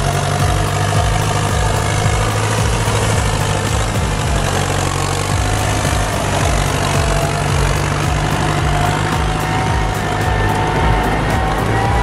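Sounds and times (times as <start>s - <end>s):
tractor diesel engine running: 0.0s - 12.0s.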